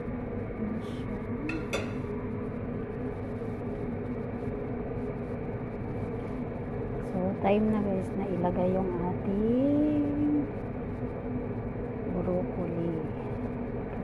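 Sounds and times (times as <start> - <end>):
steady hum with held tones: 0.0 - 14.0
cookware clinks: 1.5 - 2.0.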